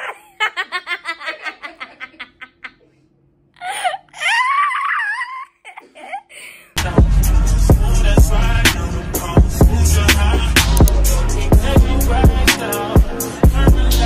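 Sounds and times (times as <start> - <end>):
high-pitched squeal of laughter: 0.0 - 2.9, 3.6 - 6.3
woman laughing: 0.0 - 3.0, 3.6 - 6.6.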